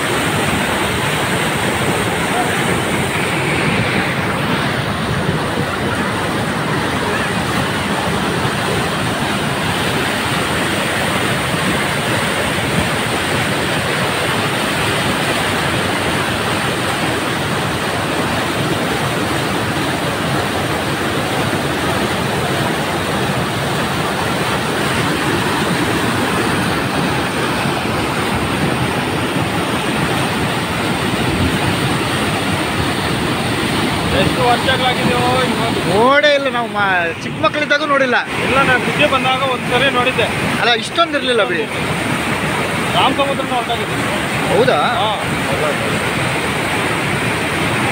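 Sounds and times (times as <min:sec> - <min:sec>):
water rushing over spillway: 0:00.0 - 0:47.9.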